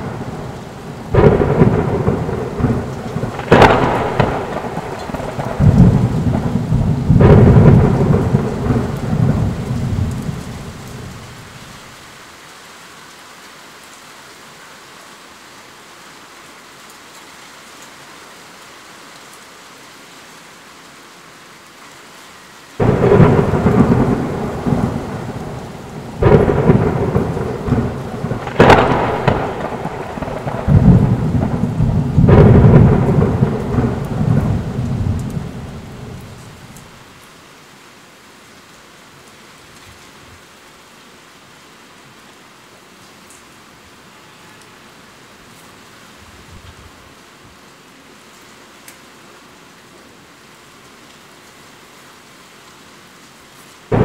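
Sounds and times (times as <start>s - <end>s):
loud thunderclap: 0.0s - 11.1s, 22.8s - 36.8s
thunder rumbling: 0.0s - 11.6s, 22.8s - 37.0s
heavy rain falling: 0.0s - 54.0s.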